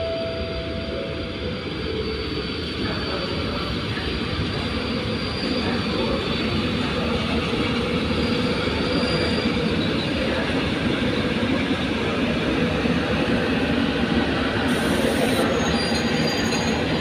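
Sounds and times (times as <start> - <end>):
train wheels rumbling on rails: 0.4 - 17.0
high wheel squeal: 1.5 - 11.3, 14.7 - 17.0.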